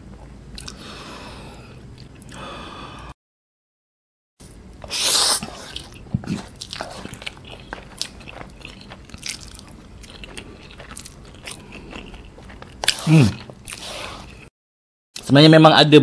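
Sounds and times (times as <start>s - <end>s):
wet chewing: 4.9s - 14.5s.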